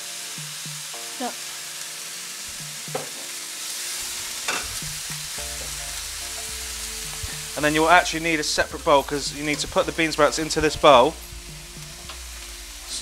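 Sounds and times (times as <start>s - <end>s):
bean sprouts sizzling in oil: 0.0s - 13.0s.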